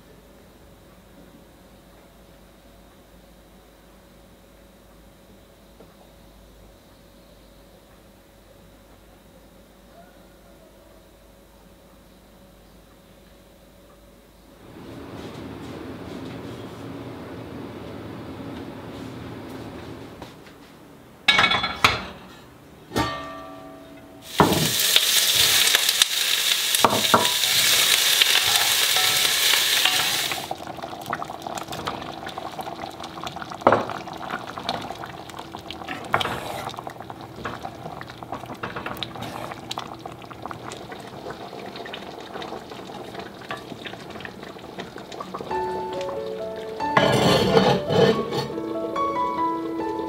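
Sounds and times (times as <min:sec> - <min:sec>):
metal clanks with ringing: 0:23.0 - 0:24.2
food sizzling in a hot pot: 0:24.2 - 0:50.0
food simmering: 0:24.3 - 0:50.0.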